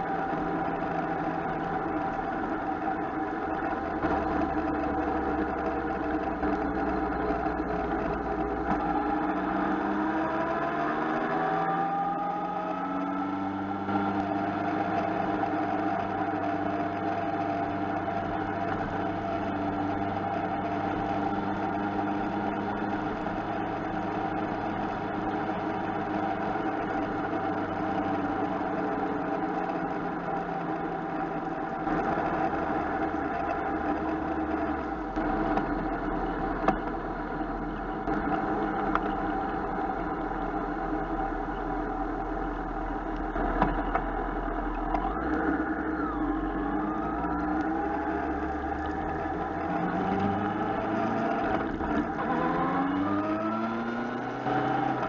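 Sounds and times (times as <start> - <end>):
motorcycle engine running: 0.0 - 55.0
road noise: 0.0 - 55.0.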